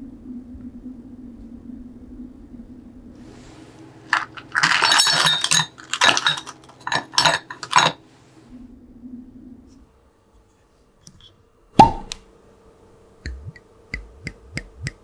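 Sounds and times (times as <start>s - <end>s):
ice cubes clinking against glass: 4.1s - 8.0s.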